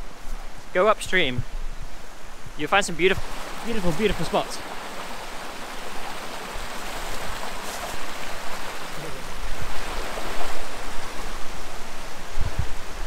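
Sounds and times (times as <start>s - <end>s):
river water rushing over rocks: 3.2s - 12.3s.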